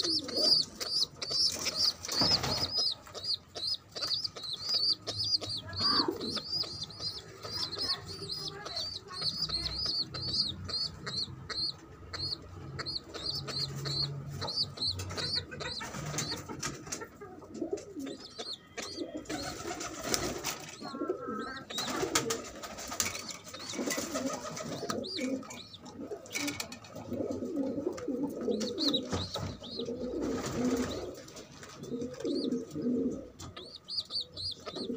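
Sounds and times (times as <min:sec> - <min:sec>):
squab cheeping: 0:00.0 - 0:16.3
pigeon cooing: 0:00.0 - 0:22.5, 0:23.1 - 0:31.2, 0:31.8 - 0:34.9.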